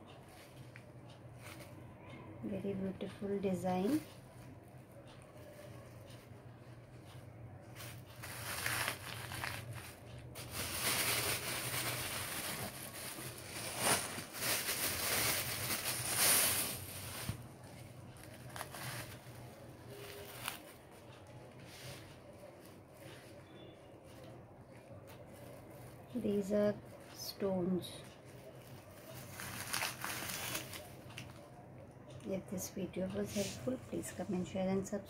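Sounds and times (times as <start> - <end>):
plastic bag crinkling: 7.8 - 20.8, 28.6 - 31.1.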